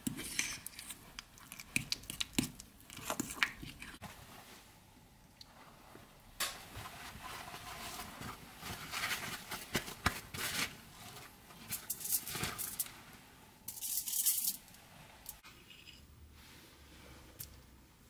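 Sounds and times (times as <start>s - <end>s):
paper towels rustling and crinkling: 5.6s - 13.2s.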